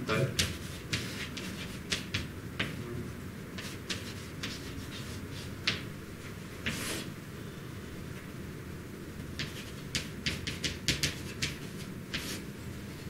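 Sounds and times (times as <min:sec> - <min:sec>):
chalk writing on chalkboard: 0:00.3 - 0:02.8, 0:03.6 - 0:05.8, 0:06.6 - 0:07.1, 0:09.4 - 0:12.5.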